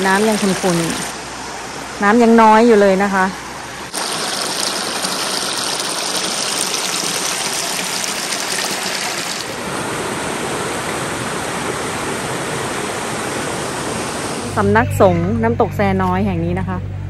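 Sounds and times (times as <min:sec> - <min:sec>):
small waterfall running: 0:00.0 - 0:01.2, 0:03.9 - 0:14.3.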